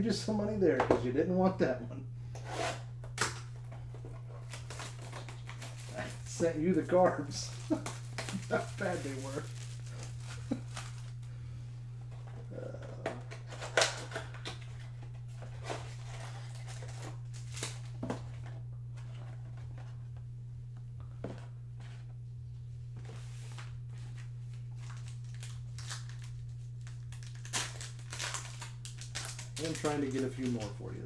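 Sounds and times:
steady low hum: 0.0s - 31.0s
cardboard and foil rustling: 3.7s - 11.3s, 12.2s - 20.0s, 23.0s - 31.0s.

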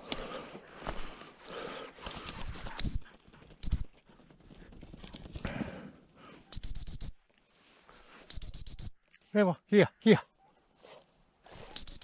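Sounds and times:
dry grass rustling: 0.0s - 9.4s, 10.6s - 12.0s
dog whistle pips: 6.5s - 7.1s, 8.3s - 8.9s, 11.7s - 12.0s.

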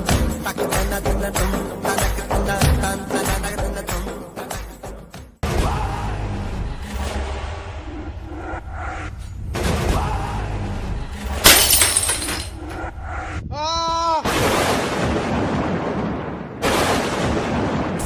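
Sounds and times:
crashing and shattering: 11.4s - 12.6s.

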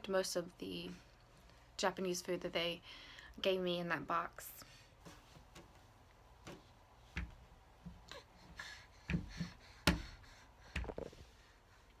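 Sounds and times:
plastic toy knocks and thumps: 9.0s - 10.2s.

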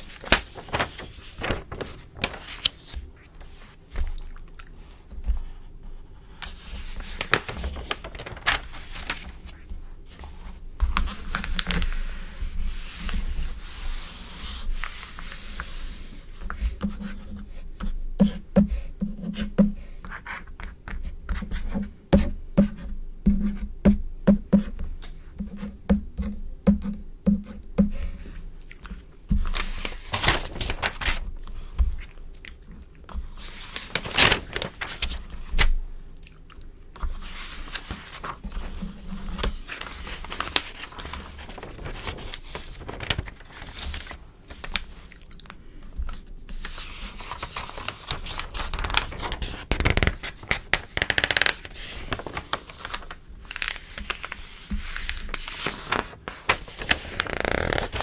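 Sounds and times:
hands rubbing paper: 0.0s - 4.0s, 6.4s - 16.5s, 29.4s - 32.1s, 37.0s - 45.1s, 46.5s - 58.0s
magazine pages turning: 0.0s - 4.2s, 6.4s - 16.0s, 29.4s - 32.1s, 33.4s - 35.7s, 37.0s - 58.0s.

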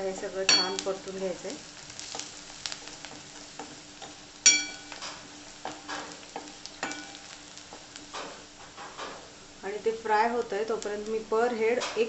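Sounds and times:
soft sizzle of frying: 0.0s - 12.0s
spatula striking metal pan: 0.5s - 0.8s, 2.9s - 7.3s
spatula scraping onions in pan: 1.6s - 9.4s.

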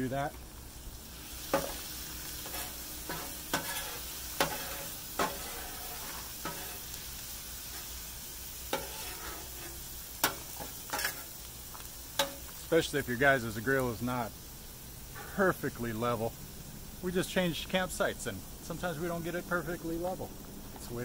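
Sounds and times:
chicken sizzling on a griddle: 0.0s - 21.0s
metal spatula scraping steel: 2.4s - 7.0s, 8.7s - 11.4s.

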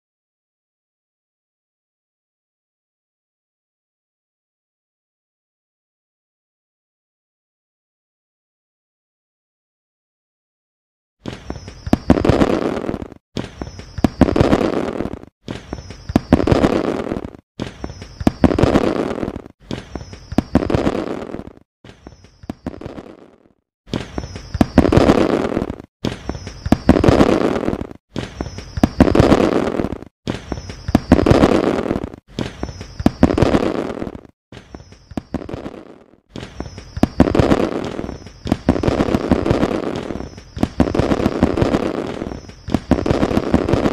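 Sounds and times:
firework crackling: 11.5s - 21.6s, 22.4s - 43.9s
firework rocket bursts: 11.9s - 13.2s, 13.9s - 17.4s, 18.2s - 19.5s, 20.3s - 21.6s, 24.5s - 25.9s, 26.6s - 34.3s, 37.0s - 43.9s.

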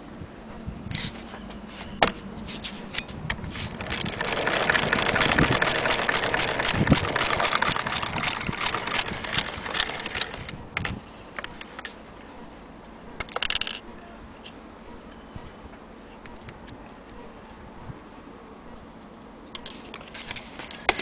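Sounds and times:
sewing machine clattering: 3.7s - 10.5s.

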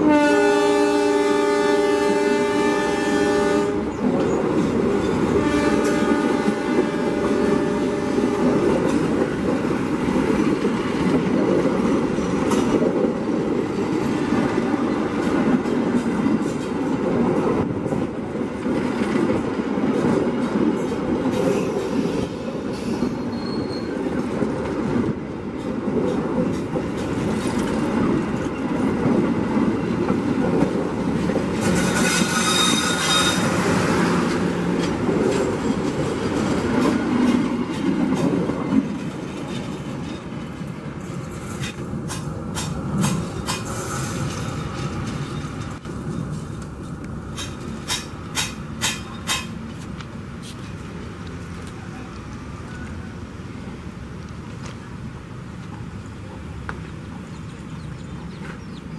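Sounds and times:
train wheels rumbling on rail: 0.0s - 58.9s
short high squeal: 22.8s - 24.0s, 31.8s - 33.8s.

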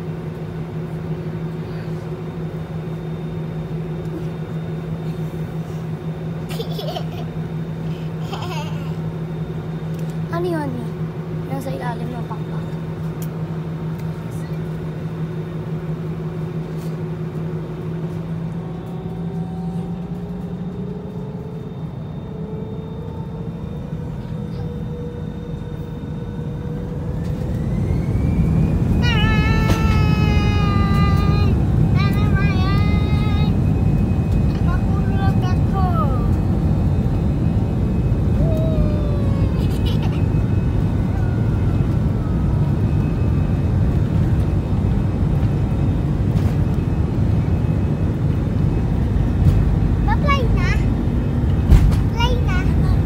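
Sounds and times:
airliner cabin hum: 0.0s - 53.0s
jet engines rumbling and whining: 0.0s - 53.0s
girl giggling: 6.5s - 7.4s, 8.0s - 9.0s, 39.2s - 40.4s.

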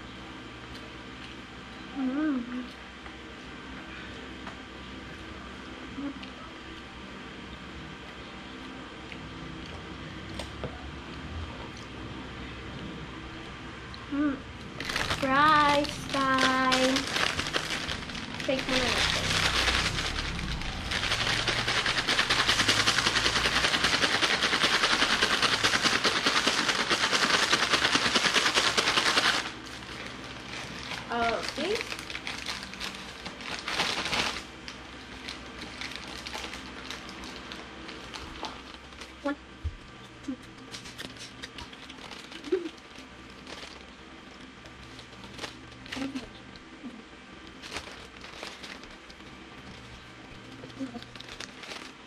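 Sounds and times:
fries rattling in shaken paper bag: 14.7s - 39.4s, 40.7s - 46.4s, 47.5s - 52.0s.

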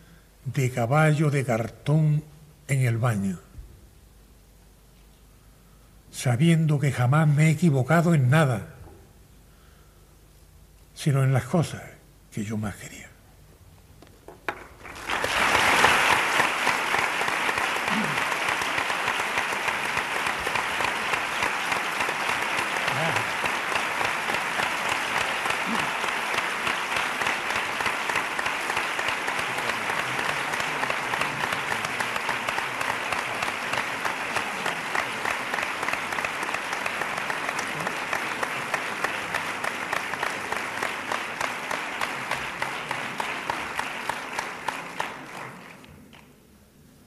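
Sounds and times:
audience applauding: 14.4s - 46.3s.

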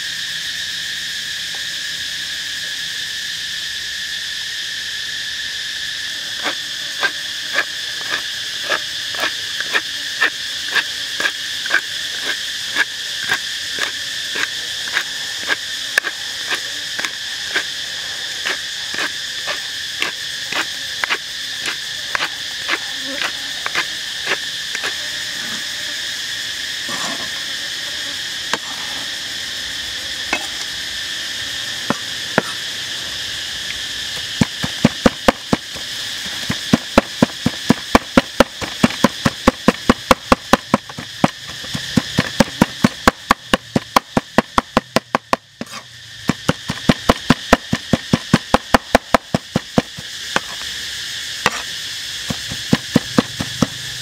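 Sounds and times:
cleaver chopping meat on wood: 34.4s - 35.7s, 36.4s - 50.6s.

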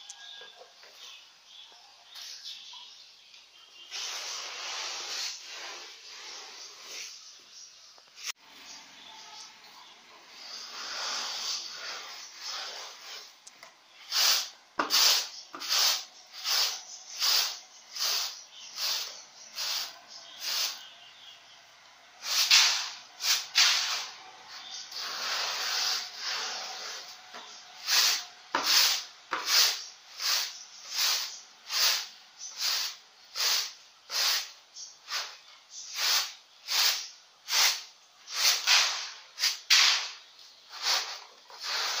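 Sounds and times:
rice rattling on winnowing tray: 14.1s - 20.8s, 27.8s - 34.5s.

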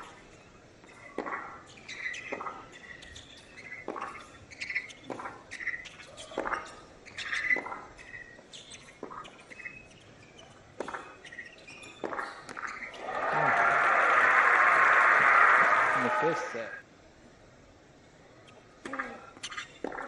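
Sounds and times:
shoe squeaks on court: 0.9s - 13.0s
crowd applause: 13.0s - 16.8s.

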